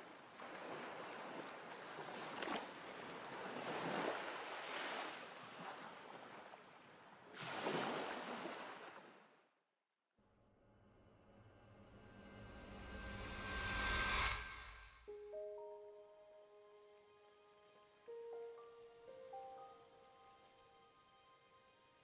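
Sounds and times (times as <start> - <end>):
waves washing in: 0.0 - 9.2.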